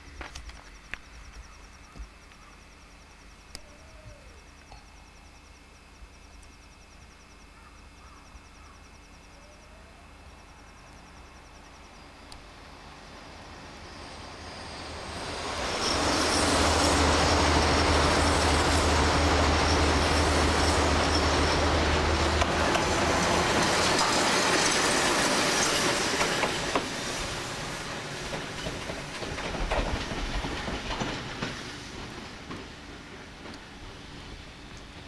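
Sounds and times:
electric locomotive passing: 2.6 - 35.0
wheels clicking on track: 15.4 - 27.1, 28.0 - 35.0
wheels over rail joints: 15.4 - 35.0.

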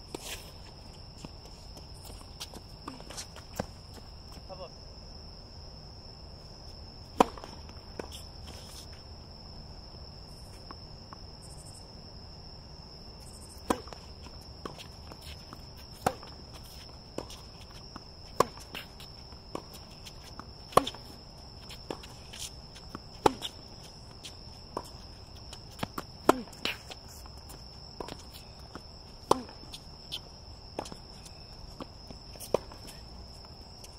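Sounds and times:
night insects chirring: 0.0 - 33.9
tennis ball struck by rackets: 7.1 - 8.1, 13.6 - 14.0, 18.0 - 18.9, 20.6 - 22.2, 22.8 - 23.7, 25.8 - 26.9, 29.2 - 29.6.

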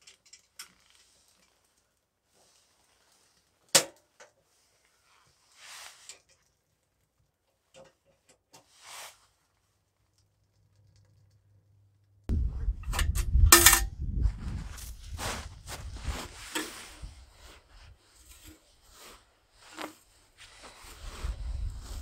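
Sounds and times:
low rumble: 12.3 - 16.3
rustling and thudding handling noise: 12.4 - 19.1.

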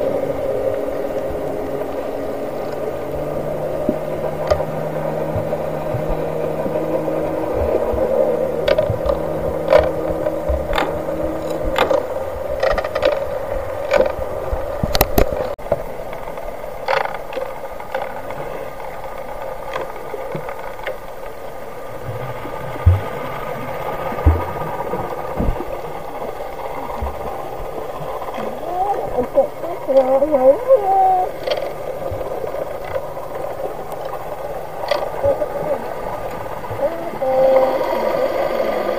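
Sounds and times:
low drone of steady tones: 0.0 - 38.9
muffled underwater hum: 0.0 - 38.9
sharp clicks and knocks: 3.8 - 4.7, 7.5 - 15.8.

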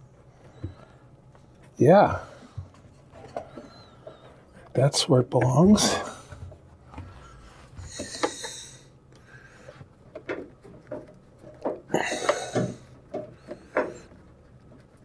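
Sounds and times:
person breathing through nose: 7.1 - 9.8.

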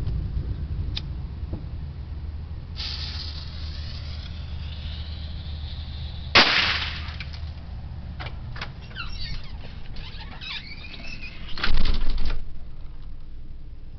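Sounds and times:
firework fuse hissing: 2.8 - 7.6
firework bang: 6.3 - 7.4.

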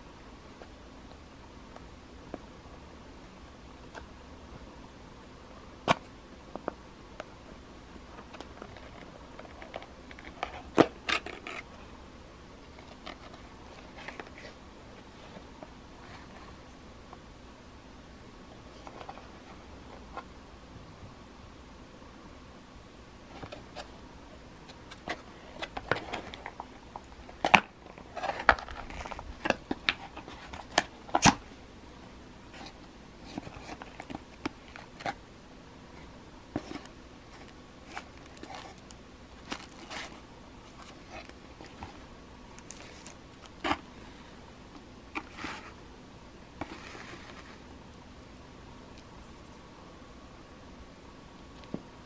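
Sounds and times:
plastic rustling: 36.6 - 43.9
cardboard scraping and sliding: 45.2 - 45.8, 46.6 - 47.6.

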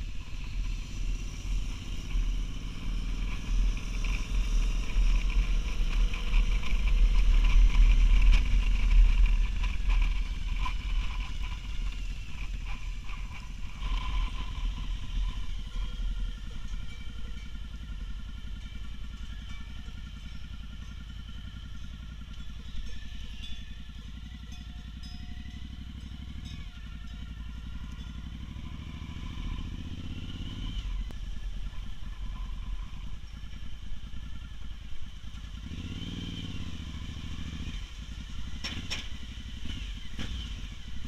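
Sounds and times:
motorcycle engine running: 0.0 - 41.0.

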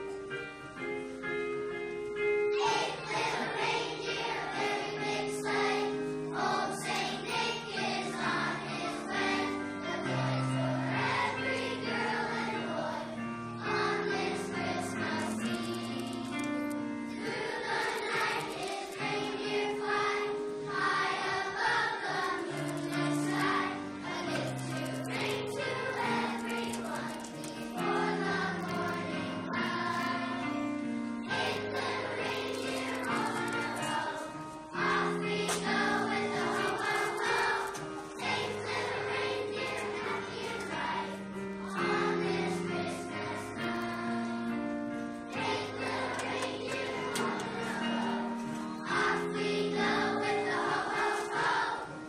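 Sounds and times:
children's choir singing: 2.1 - 52.0.

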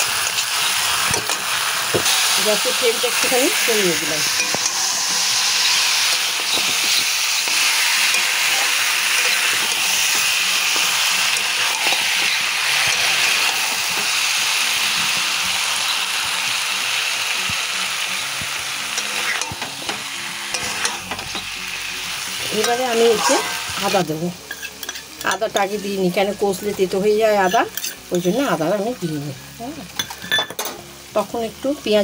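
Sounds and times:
meat sizzling in a pan: 0.0 - 32.0
spatula scraping a pan: 2.0 - 14.2, 18.9 - 21.4, 24.4 - 26.2.

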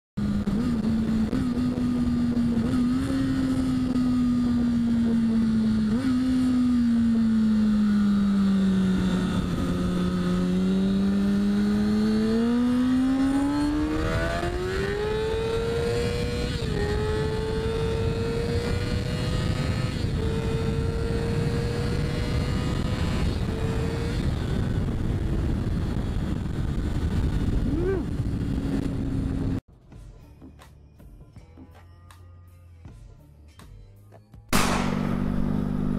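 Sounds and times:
motorcycle engine running: 0.2 - 29.6, 34.6 - 35.9
wind rush on microphone: 8.6 - 12.7, 13.4 - 29.6.

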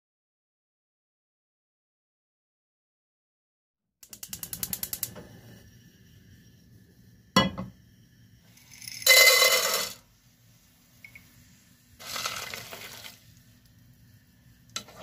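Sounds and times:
starch lumps rattling into pot: 12.0 - 13.2.

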